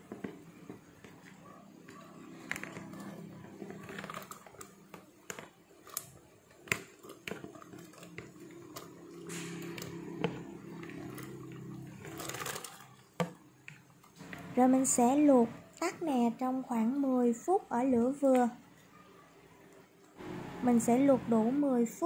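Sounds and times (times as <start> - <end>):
pot of water boiling: 0.0 - 17.5.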